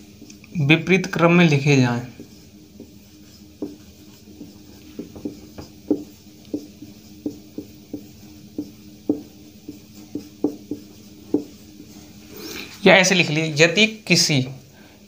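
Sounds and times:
steady hum: 0.0s - 15.0s
marker knocking on whiteboard: 2.2s - 11.6s.

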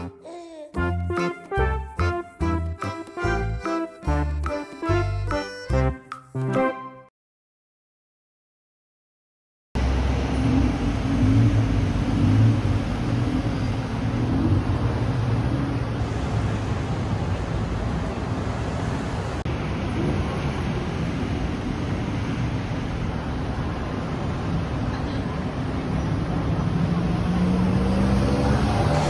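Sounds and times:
car and bus engines: 9.8s - 29.0s
vehicle passing: 26.8s - 29.0s.

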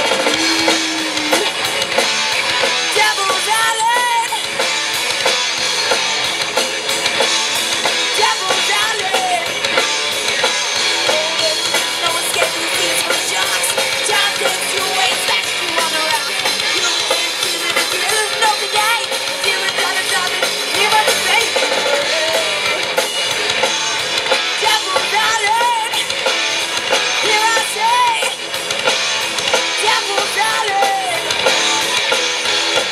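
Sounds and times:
bass guitar: 0.0s - 32.9s
drum kit: 0.0s - 32.9s
electric guitars: 0.0s - 32.9s
woman singing: 2.9s - 4.5s, 8.1s - 9.5s, 11.1s - 22.8s, 24.6s - 26.1s, 27.2s - 28.4s, 29.8s - 31.2s.

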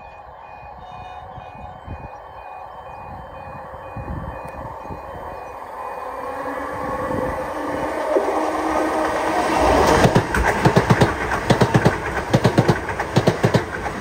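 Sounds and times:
two-tone crossing alarm beeping: 0.0s - 10.3s
train rumble: 0.0s - 14.0s.

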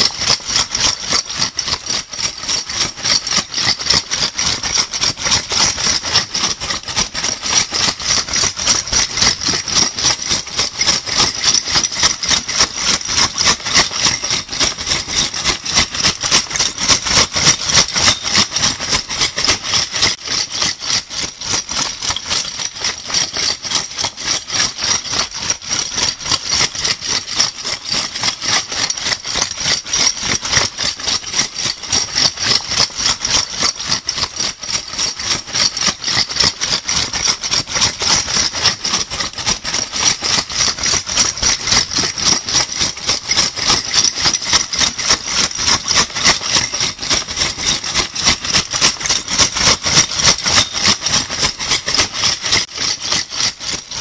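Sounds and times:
bottle caps clattering in bag: 6.8s - 26.9s, 40.6s - 54.0s.

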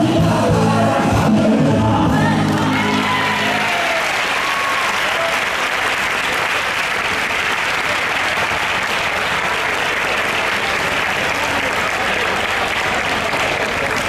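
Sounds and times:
music: 0.0s - 4.0s
crowd applauding: 2.2s - 14.0s.

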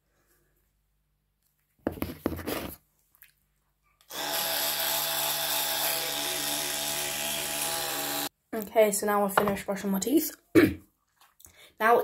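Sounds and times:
electric toothbrush buzzing: 4.1s - 8.3s.

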